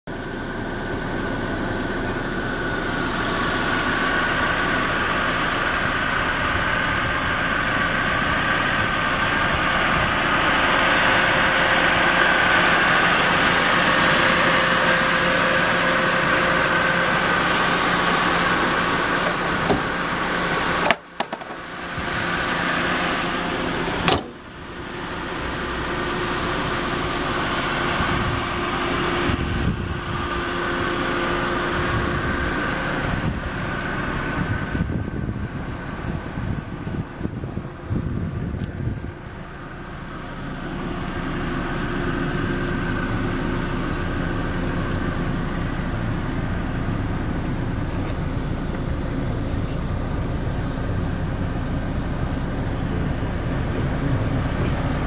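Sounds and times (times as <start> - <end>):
car engine idling: 0.1 - 55.0.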